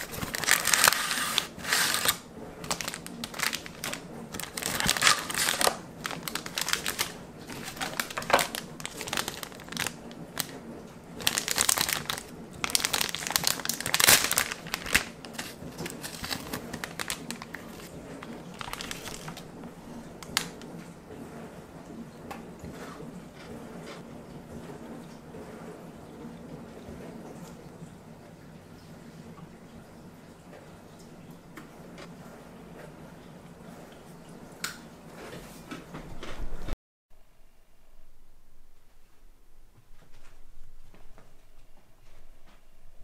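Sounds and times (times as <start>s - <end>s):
plastic wrapper and box crinkling: 0.0s - 10.6s, 11.2s - 20.7s.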